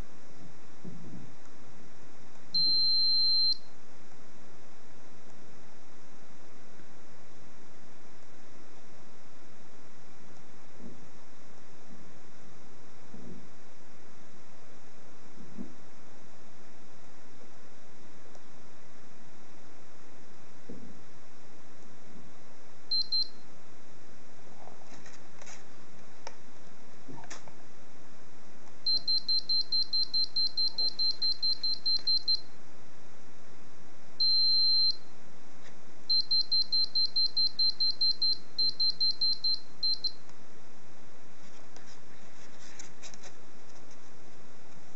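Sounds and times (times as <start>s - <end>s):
high-pitched electronic beeps: 28.9s - 32.4s.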